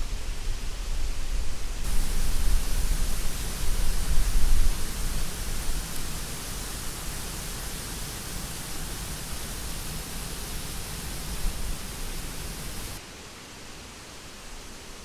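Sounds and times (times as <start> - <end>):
water rushing over rocks: 1.9 - 13.0.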